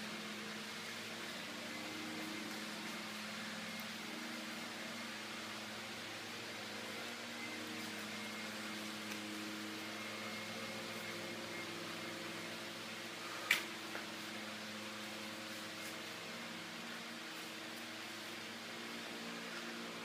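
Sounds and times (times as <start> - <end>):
machine humming: 0.0 - 20.0.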